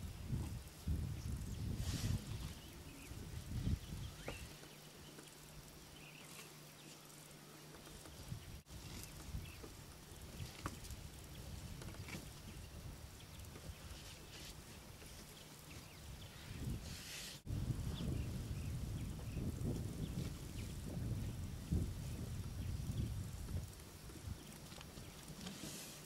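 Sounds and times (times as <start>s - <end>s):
soft rustles and clicks: 0.3s - 16.0s, 22.0s - 26.0s.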